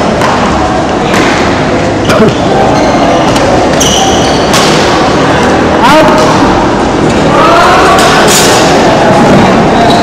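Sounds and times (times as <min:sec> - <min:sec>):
shoe squeaking on court: 0:02.0 - 0:04.8, 0:09.8 - 0:10.0
rackets hitting shuttlecock: 0:03.3 - 0:05.5.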